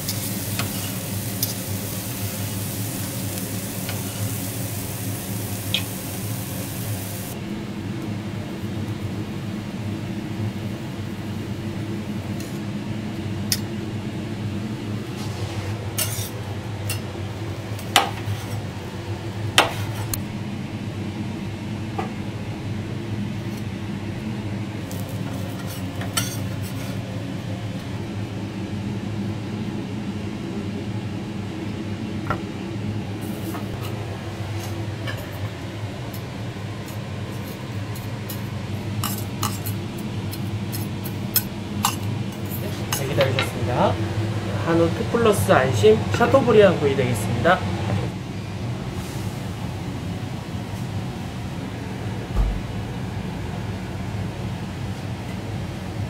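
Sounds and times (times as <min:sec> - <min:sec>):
food sizzling: 0:00.0 - 0:07.4
spatula scraping on griddle: 0:15.2 - 0:16.4.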